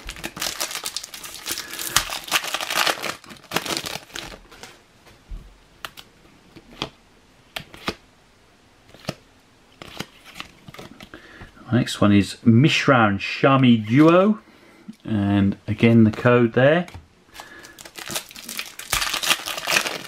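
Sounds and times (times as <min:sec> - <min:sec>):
foil pack tearing and crinkling: 0:00.0 - 0:04.7, 0:17.4 - 0:20.0.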